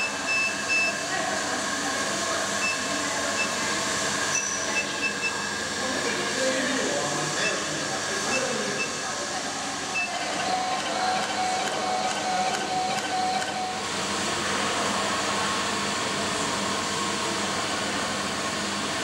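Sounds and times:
tube-cutting machine motor whine: 0:00.0 - 0:14.2.

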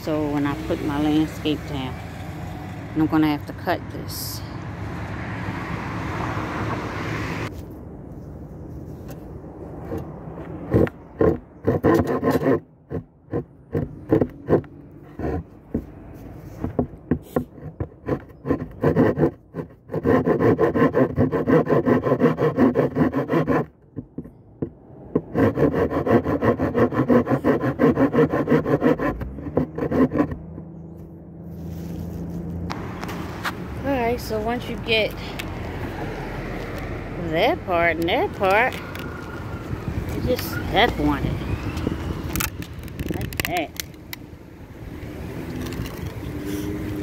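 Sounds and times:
hand saw cutting wood: 0:10.7 - 0:15.9, 0:16.6 - 0:23.8, 0:25.2 - 0:30.6.

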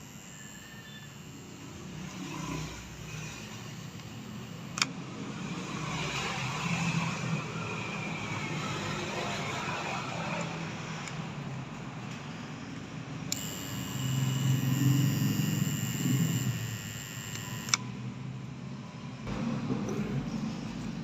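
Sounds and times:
high steady whine: 0:00.0 - 0:04.8, 0:13.3 - 0:18.0
hot stapler humming: 0:00.0 - 0:05.0, 0:13.3 - 0:17.9.

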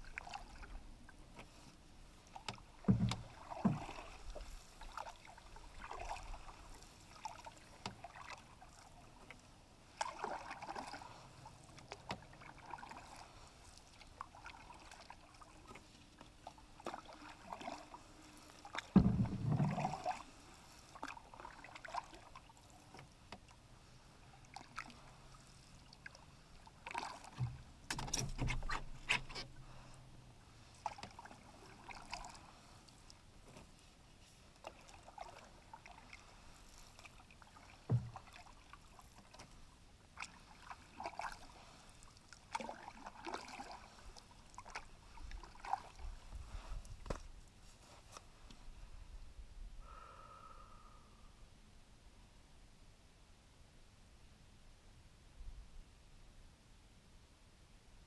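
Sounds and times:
paddle swishes and drips: 0:00.0 - 0:49.2
knocks and thumps: 0:02.9 - 0:03.8, 0:19.0 - 0:19.7.

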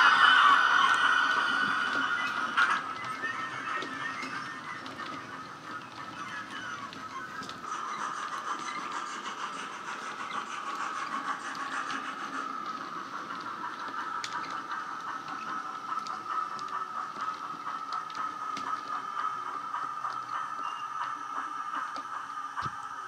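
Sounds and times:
constant high tone: 0:00.0 - 0:22.4
model steam locomotive exhaust: 0:00.0 - 0:23.0.

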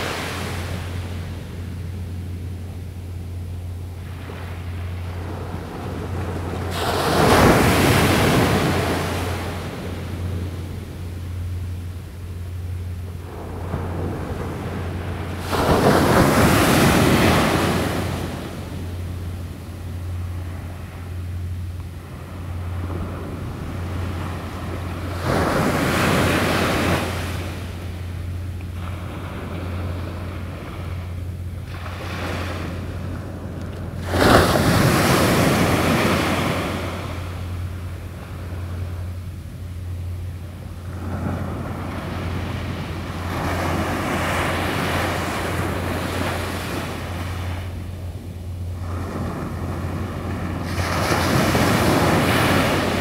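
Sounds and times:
small waves breaking on beach: 0:00.0 - 0:01.6, 0:04.0 - 0:11.0, 0:13.2 - 0:19.8, 0:22.0 - 0:28.0, 0:31.6 - 0:39.0, 0:48.7 - 0:53.0
steady low hum: 0:00.0 - 0:53.0.

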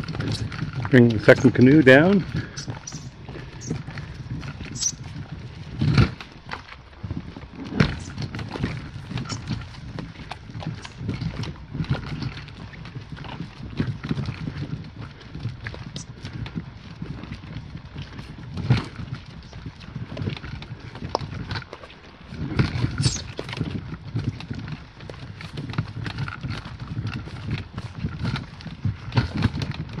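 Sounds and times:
footsteps crunching on gravel: 0:00.0 - 0:30.0
wheeled cart rattling over stones: 0:00.0 - 0:30.0.

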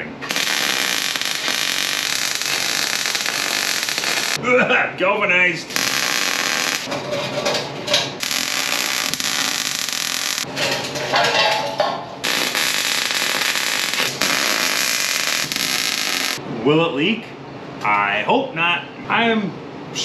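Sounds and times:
welder arc hissing: 0:00.0 - 0:04.4, 0:05.7 - 0:06.9, 0:08.2 - 0:10.5, 0:12.2 - 0:16.4.

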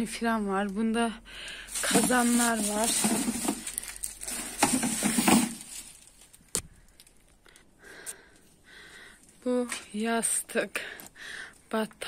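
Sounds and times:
handling rustle: 0:01.5 - 0:07.2.

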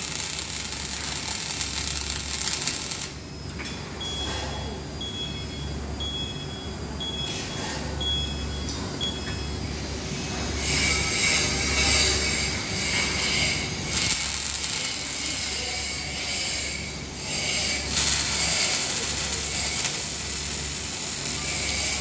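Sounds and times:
welding arc crackling and sizzling: 0:00.0 - 0:03.3, 0:10.5 - 0:22.0.

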